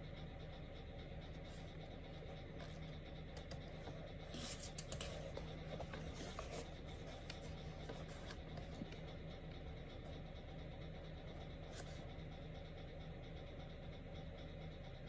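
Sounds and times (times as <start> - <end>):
faint steady hum: 0.0 - 15.0
book pages turning: 3.4 - 9.0.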